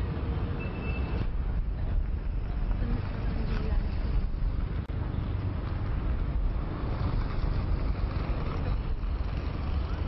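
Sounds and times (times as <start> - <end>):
traffic rumble: 0.0 - 10.0.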